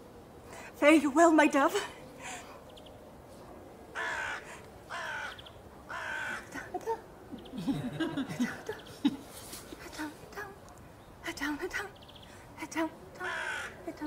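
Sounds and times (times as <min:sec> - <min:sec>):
crow cawing: 0:04.0 - 0:06.5, 0:13.2 - 0:13.8.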